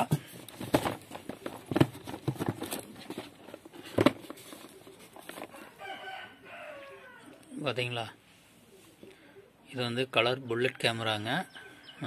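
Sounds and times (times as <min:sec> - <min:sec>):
cardboard boxes knocking and rustling: 0:00.0 - 0:05.6.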